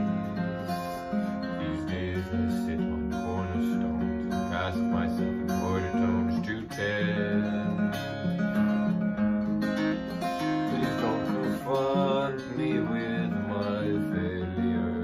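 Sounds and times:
man singing: 0.0 - 8.8, 10.1 - 15.0
acoustic guitar: 0.0 - 15.0.

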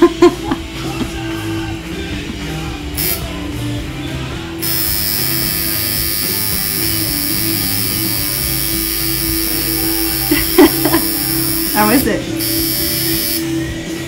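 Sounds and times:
background music: 0.0 - 14.0
tattoo machine buzzing: 3.0 - 3.8, 4.4 - 14.0.

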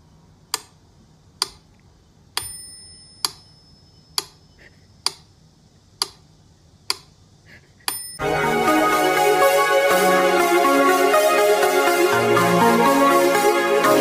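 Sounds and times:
bell-like ring: 2.4 - 4.2, 7.9 - 8.3.

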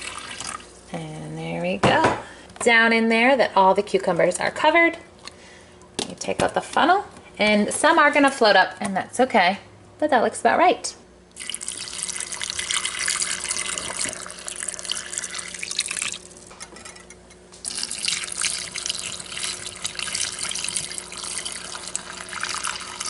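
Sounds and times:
liquid pouring into a jar: 11.4 - 16.5, 17.6 - 23.0.

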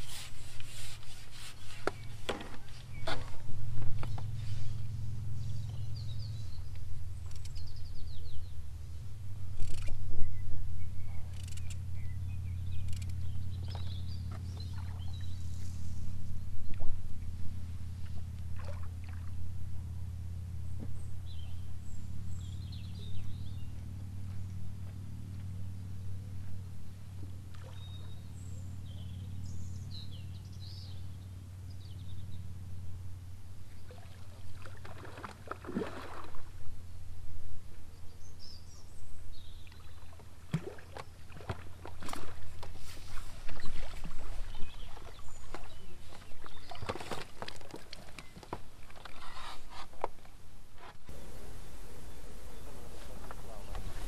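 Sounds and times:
faint bird chirps: 9.6 - 16.9, 51.1 - 54.0
water sloshing: 13.7 - 15.4, 18.0 - 19.6, 27.2 - 28.3, 33.7 - 36.6, 39.7 - 49.4
fish splashing and thrashing: 33.9 - 36.5, 39.9 - 42.8, 43.4 - 49.2.

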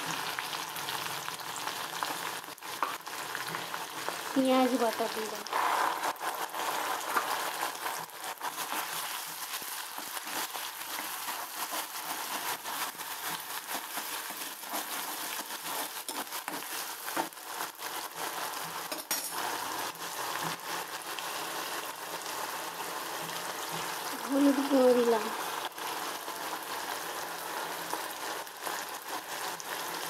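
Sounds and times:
onions sizzling in hot oil: 0.0 - 30.0
metal spatula scraping pan: 5.5 - 17.4.

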